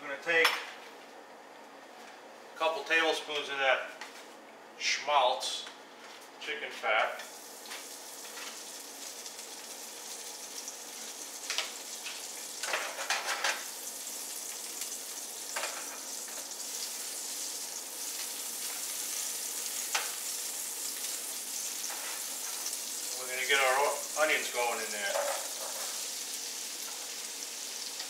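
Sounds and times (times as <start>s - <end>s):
fat sizzling in a frying pan: 7.3s - 28.0s.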